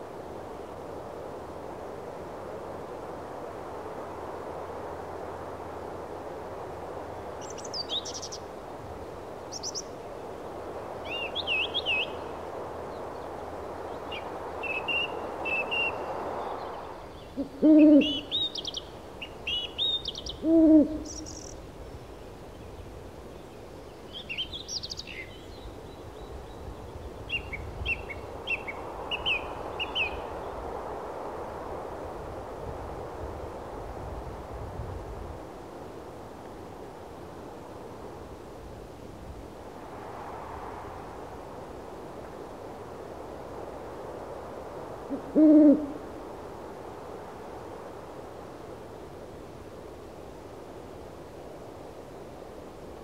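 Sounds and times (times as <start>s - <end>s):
steady background hiss: 0.0s - 53.0s
small birds chirping: 7.4s - 8.4s, 21.0s - 21.6s
owl hooting: 17.3s - 18.8s, 20.3s - 21.5s, 45.1s - 46.0s.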